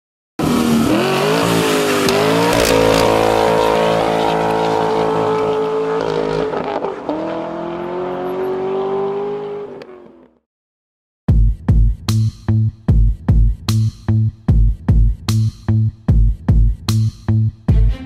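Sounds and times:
car engine at high revs: 0:00.4 - 0:10.4.

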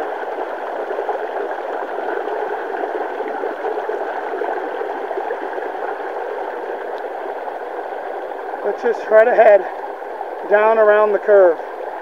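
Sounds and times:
stream rushing over rocks: 0:00.0 - 0:12.0.

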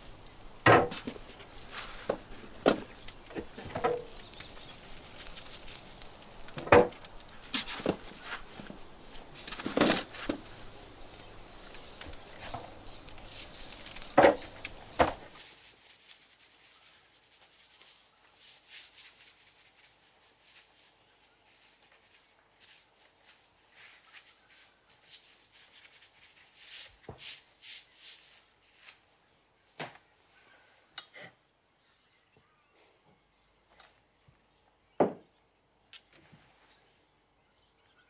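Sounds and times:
scraping and rustling: 0:00.0 - 0:29.0.

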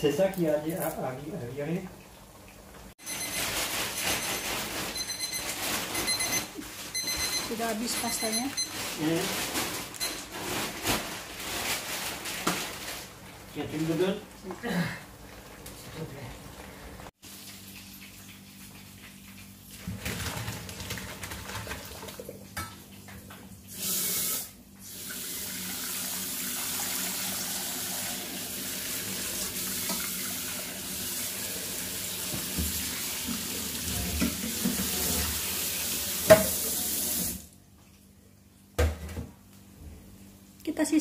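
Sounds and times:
tap running into sink: 0:32.2 - 0:35.3, 0:36.2 - 0:36.6
knocks in sink: 0:36.3 - 0:36.6.

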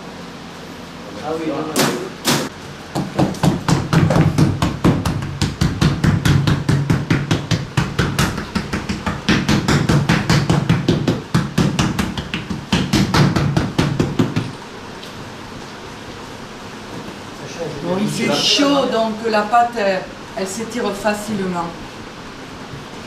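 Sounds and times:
hand slapping pastry dough: 0:01.8 - 0:14.6.

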